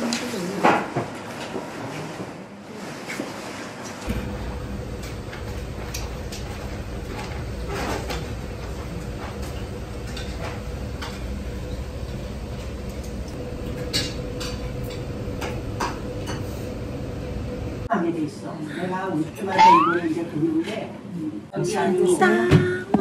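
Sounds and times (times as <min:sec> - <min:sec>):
steady low hum: 0:04.0 - 0:17.9.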